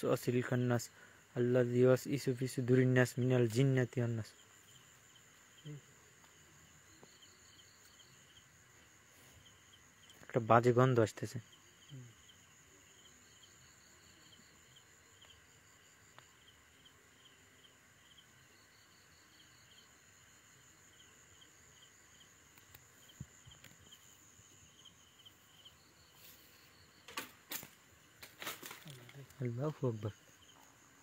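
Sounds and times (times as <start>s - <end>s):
cricket chirping: 0.0s - 31.0s
high-pitched insect buzz: 4.3s - 8.4s.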